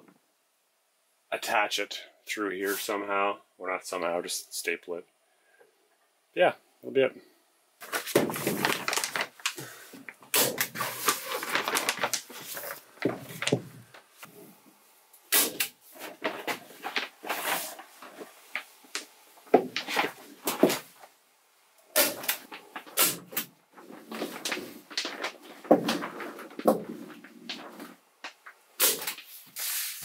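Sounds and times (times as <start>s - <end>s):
plastic sheeting crinkling: 7.8s - 14.5s, 15.4s - 21.2s, 21.9s - 30.0s.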